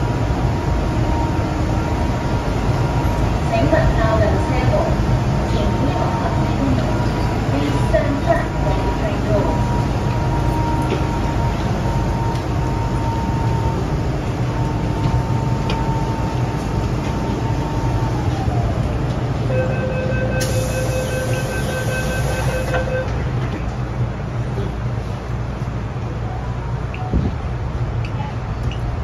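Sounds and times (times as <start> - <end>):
train equipment rumble: 0.0 - 19.5
rapid door warning beeps: 19.6 - 23.2
train doors closing with hiss: 20.3 - 23.7.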